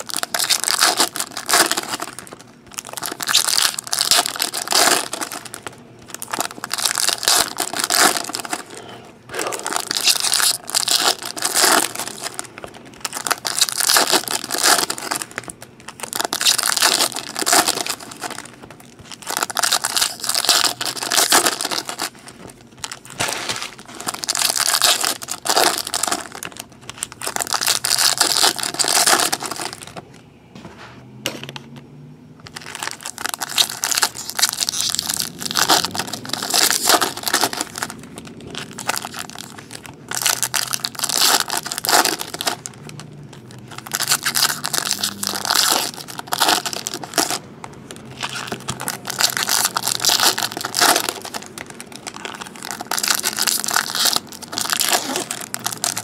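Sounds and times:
foil wrappers crinkling and tearing: 0.0s - 30.0s, 32.4s - 56.0s.

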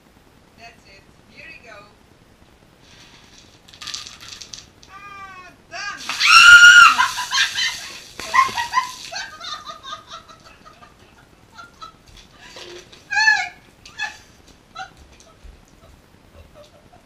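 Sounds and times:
woman screaming: 4.9s - 8.8s, 13.1s - 14.2s.

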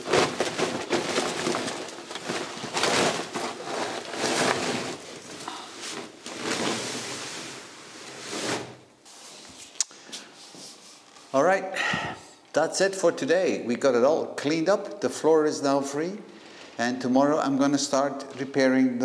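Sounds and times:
plastic bag rustling and scraping: 0.0s - 11.3s.

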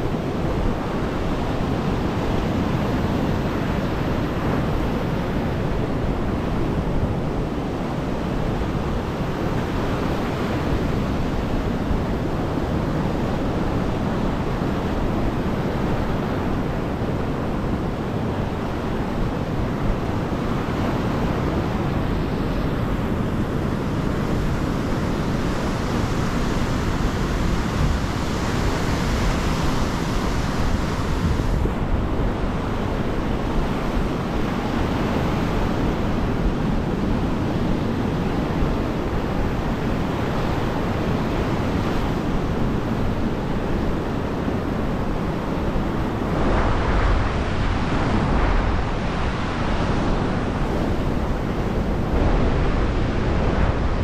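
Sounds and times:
surf breaking ashore: 0.0s - 54.0s
wind rumbling on microphone: 0.0s - 54.0s.

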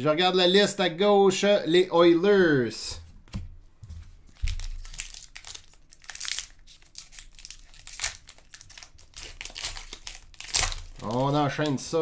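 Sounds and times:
cards rustling: 3.2s - 12.0s
wrappers crinkling: 4.3s - 12.0s.

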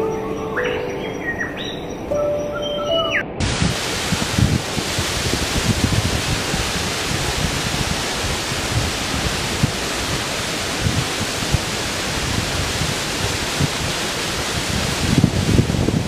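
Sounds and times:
stream rushing over boulders: 3.4s - 16.0s.

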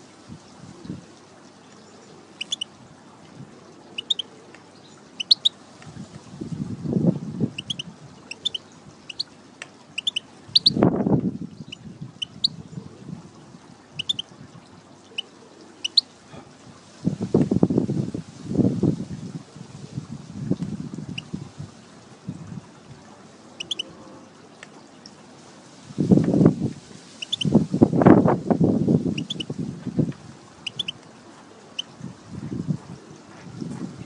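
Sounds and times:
finch high chirps: 2.4s - 2.7s, 4.0s - 4.2s, 5.2s - 5.5s, 7.6s - 9.3s, 10.0s - 10.8s, 11.6s - 12.6s, 14.0s - 14.2s, 15.8s - 16.0s, 23.6s - 23.9s, 27.2s - 27.6s, 29.2s - 29.5s, 30.6s - 31.0s.

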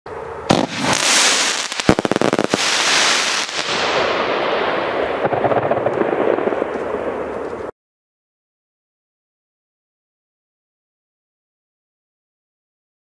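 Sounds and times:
firework hissing rush: 0.5s - 4.9s
firework hiss and crackle: 0.5s - 6.7s
firework bang: 0.5s - 7.3s
firework sharp cracks: 0.5s - 7.6s.

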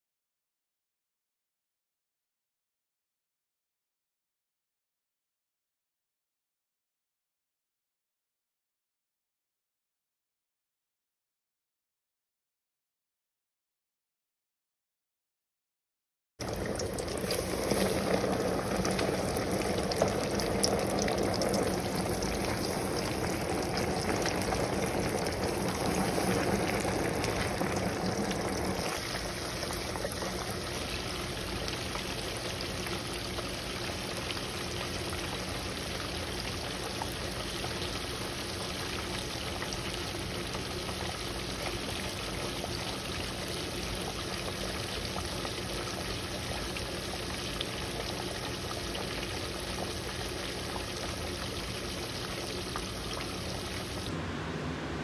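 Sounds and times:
fish deep-frying in oil: 16.4s - 54.1s.

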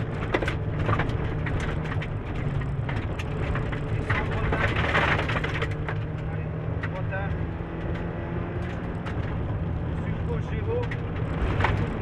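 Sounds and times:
stones clattering against car underside: 0.0s - 6.2s
rally car engine under load: 0.0s - 12.0s.

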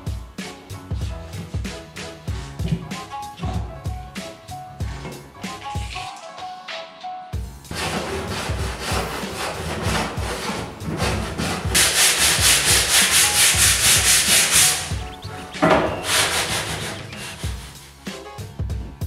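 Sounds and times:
hand sanding plywood: 7.7s - 18.0s.

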